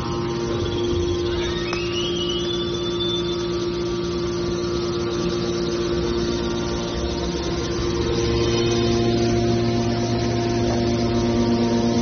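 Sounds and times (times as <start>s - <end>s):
rising high tone: 0.0s - 10.3s
hydraulic pump motor humming: 0.0s - 12.0s.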